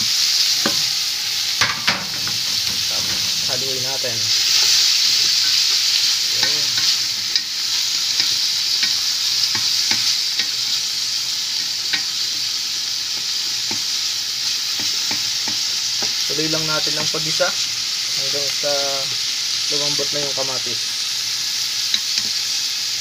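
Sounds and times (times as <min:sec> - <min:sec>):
vegetables sizzling in oil: 0:00.0 - 0:23.0
utensil scraping pan: 0:01.6 - 0:07.4.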